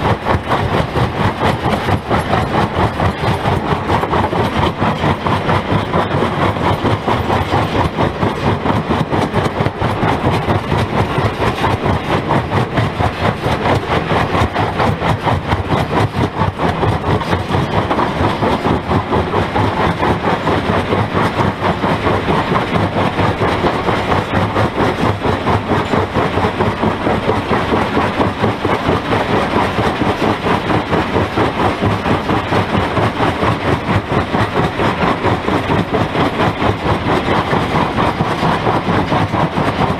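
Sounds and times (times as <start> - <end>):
rock crusher clatter and grind: 0.0 - 39.9.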